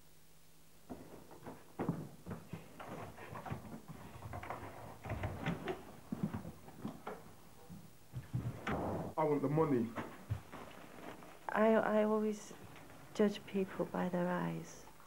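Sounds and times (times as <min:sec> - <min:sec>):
bags rustling: 0:10.0 - 0:11.5.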